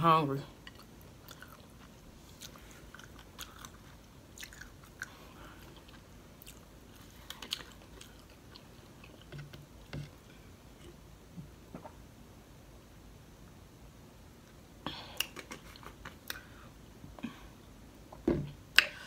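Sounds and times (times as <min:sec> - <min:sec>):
chewing crunches: 0:00.6 - 0:09.6.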